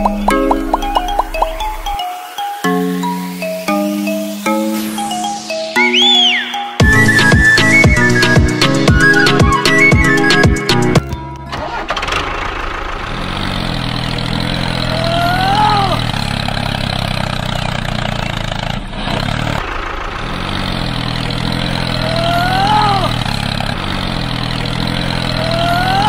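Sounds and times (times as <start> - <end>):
tractor engine running: 0.0 - 2.0, 3.0 - 26.0
short high rising tone: 3.1 - 8.3.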